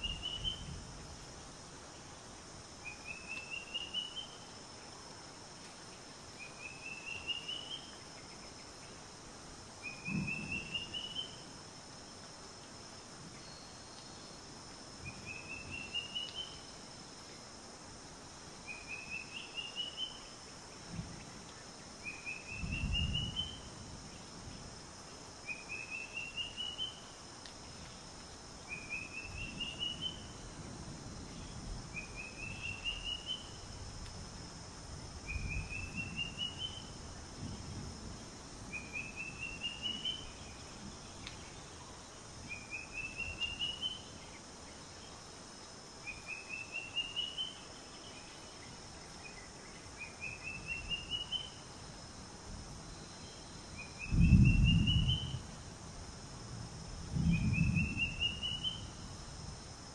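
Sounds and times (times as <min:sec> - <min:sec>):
bird singing: 0:00.0 - 0:00.8, 0:02.8 - 0:04.4, 0:06.4 - 0:08.9, 0:09.8 - 0:11.4, 0:15.1 - 0:16.7, 0:18.6 - 0:20.4, 0:22.0 - 0:23.7, 0:25.4 - 0:27.1, 0:28.7 - 0:30.4, 0:31.3 - 0:33.6, 0:35.3 - 0:37.0, 0:38.7 - 0:45.2, 0:46.0 - 0:51.6, 0:53.0 - 0:55.4, 0:57.3 - 0:59.0
high insect hiss: 0:00.0 - 0:59.9.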